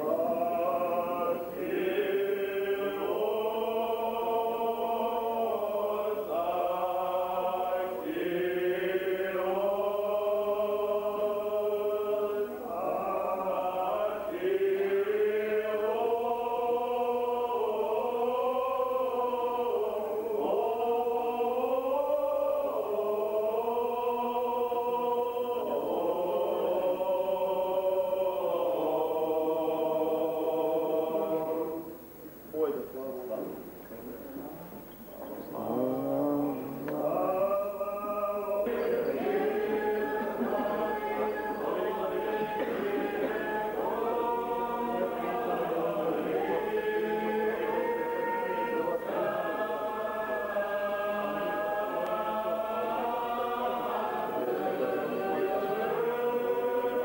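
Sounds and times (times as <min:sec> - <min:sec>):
choir singing a slow chant: 0:00.0 - 0:33.1, 0:35.2 - 0:57.0.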